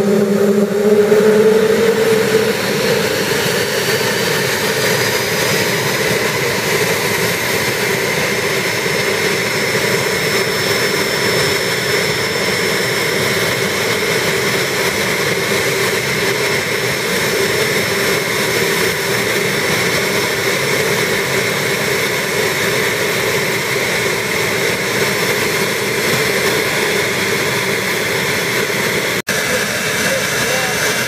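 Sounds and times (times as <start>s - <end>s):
rushing noise: 0.0s - 14.3s
jet engine whine: 0.0s - 31.0s.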